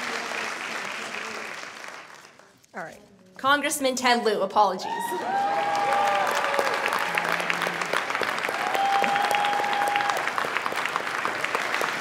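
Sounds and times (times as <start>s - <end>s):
audience applauding: 0.0s - 2.5s, 5.0s - 12.0s
person whooping: 8.5s - 10.2s.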